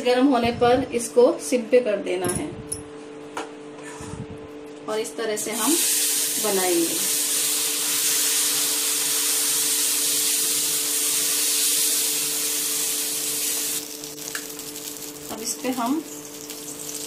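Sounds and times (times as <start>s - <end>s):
steady low hum: 0.0s - 7.4s
batter sizzling on hot griddle: 5.4s - 17.0s.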